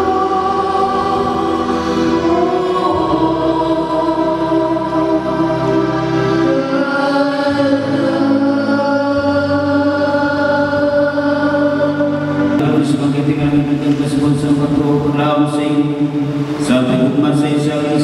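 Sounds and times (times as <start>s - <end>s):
women singing a hymn: 0.0s - 12.6s.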